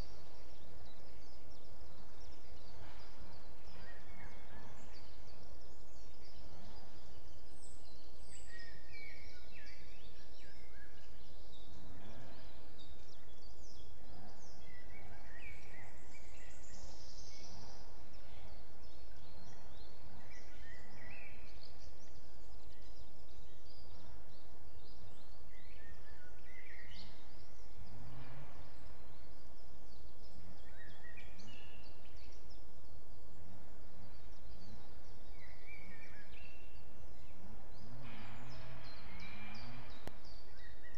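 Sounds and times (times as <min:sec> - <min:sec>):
birds chirping and singing: 0:00.0 - 0:40.9
low rumble: 0:27.0 - 0:40.9.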